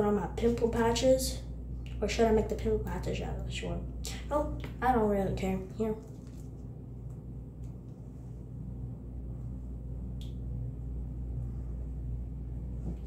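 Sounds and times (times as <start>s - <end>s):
steady low hum: 0.0s - 13.0s
faint click: 10.2s - 10.4s.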